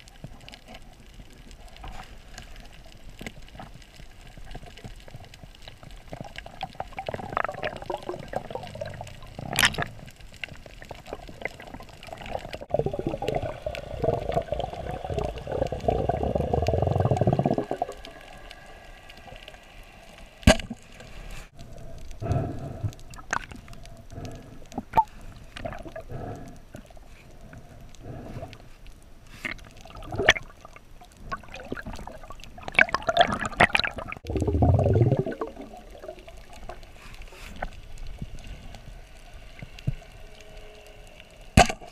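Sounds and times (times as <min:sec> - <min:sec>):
water swishing and gurgling underwater: 0:00.0 - 0:41.9
sharp underwater clicks: 0:20.4 - 0:38.9, 0:41.6 - 0:41.9.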